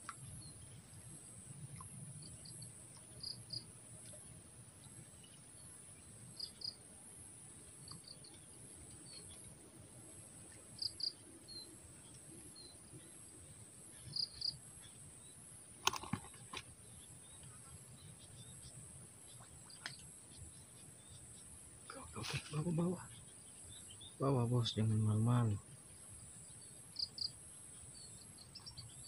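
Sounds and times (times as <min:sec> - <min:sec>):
high-pitched insect chorus: 0:10.0 - 0:29.0.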